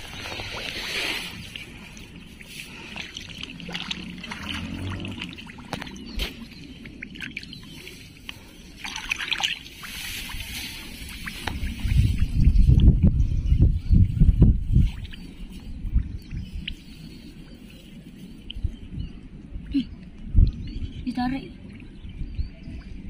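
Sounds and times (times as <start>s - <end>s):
louder washes of water: 2.5s - 5.8s
hands splashing in muddy water: 2.5s - 6.4s.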